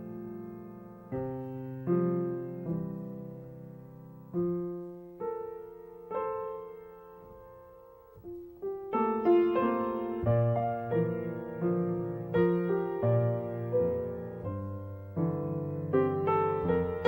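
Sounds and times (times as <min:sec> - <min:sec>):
slow piano chords: 0:00.0 - 0:17.0.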